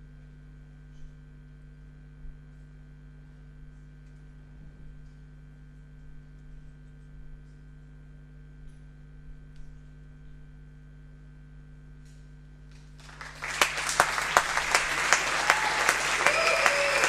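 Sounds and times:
audience applause: 0:13.0 - 0:17.0
whistles: 0:13.0 - 0:17.0.

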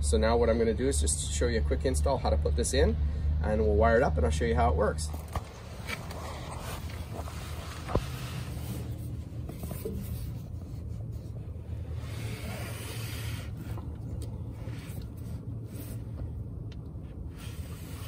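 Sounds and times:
steady low rumble: 0:00.0 - 0:18.0
hands rubbing hoses: 0:05.4 - 0:18.0.

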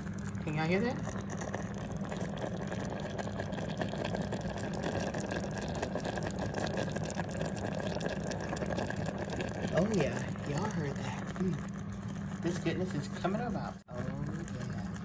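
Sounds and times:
pot bubbling: 0:00.0 - 0:15.0.

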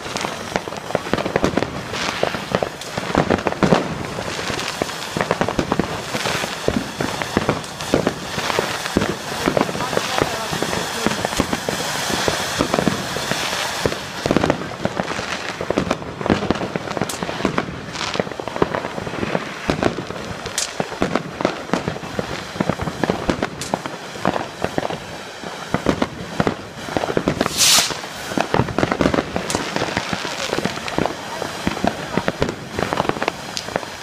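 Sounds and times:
fireworks cracks and bangs: 0:00.0 - 0:34.0
loud hiss: 0:26.6 - 0:34.0.

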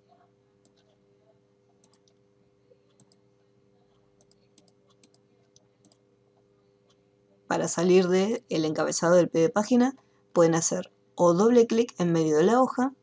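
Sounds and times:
low steady hum: 0:00.0 - 0:13.0
computer mouse clicks: 0:00.6 - 0:01.0, 0:01.8 - 0:02.2, 0:02.9 - 0:06.1.

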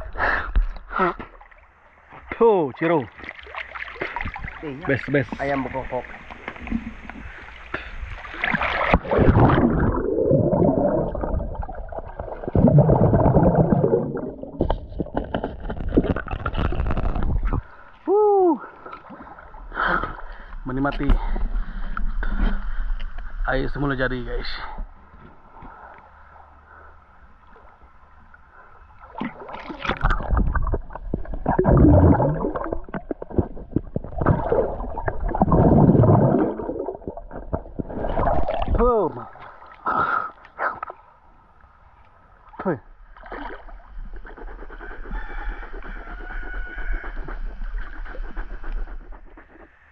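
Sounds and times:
water splashing: 0:01.0 - 0:17.7, 0:29.0 - 0:41.0, 0:43.1 - 0:44.0
muffled underwater gurgling: 0:04.1 - 0:17.8, 0:29.8 - 0:39.4.

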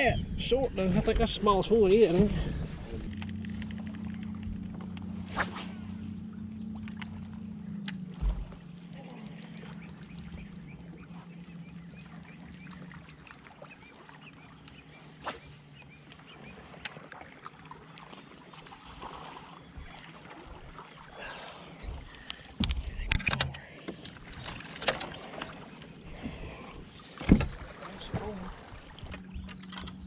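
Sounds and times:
trolling motor hum: 0:00.5 - 0:30.0
water splashing: 0:01.9 - 0:29.9
small clicks: 0:03.1 - 0:05.1, 0:29.1 - 0:30.0
knocks on boat deck: 0:27.2 - 0:27.6.

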